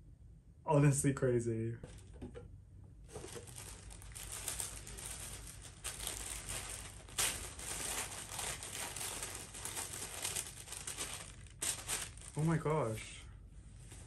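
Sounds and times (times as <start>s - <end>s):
tissue paper rustling: 3.1s - 12.8s, 13.8s - 14.0s.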